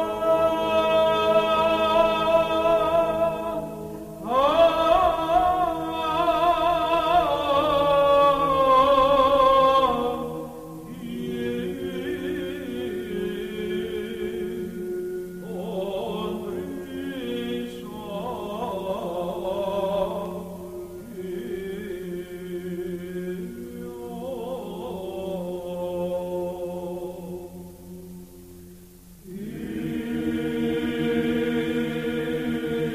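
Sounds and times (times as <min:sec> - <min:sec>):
voices chanting melody: 0:00.0 - 0:28.2, 0:29.2 - 0:32.9.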